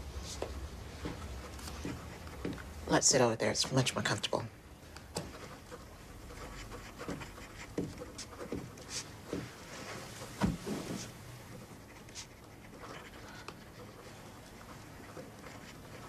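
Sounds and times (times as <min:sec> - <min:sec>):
soft footsteps: 0:00.0 - 0:02.9, 0:07.0 - 0:11.7
clothing rustle: 0:08.9 - 0:11.4
dull thump of sitting on sofa: 0:10.4 - 0:11.1.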